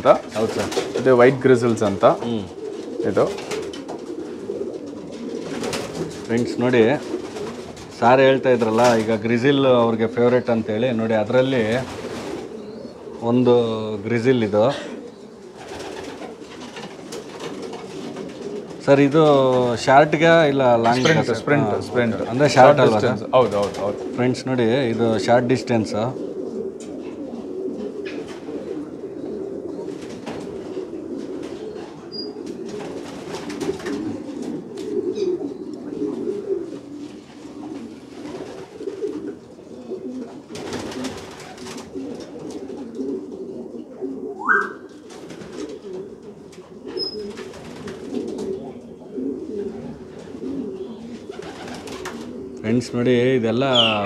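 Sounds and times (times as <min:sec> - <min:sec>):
pigeons cooing: 0:00.0 - 0:54.0
short rising pigeon call: 0:44.2 - 0:45.8, 0:53.7 - 0:54.0.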